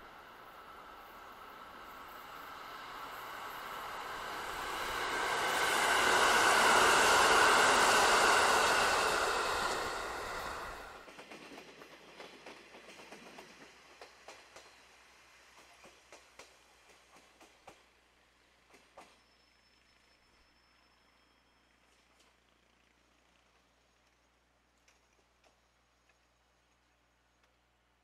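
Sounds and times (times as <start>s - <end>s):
train wheels rushing on rail: 0.0s - 19.4s.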